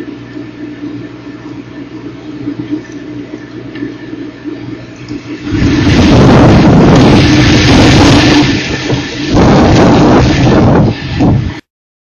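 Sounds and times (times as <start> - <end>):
low rumble with hum: 0.0 - 11.6
wind and rain on microphone: 5.2 - 11.6.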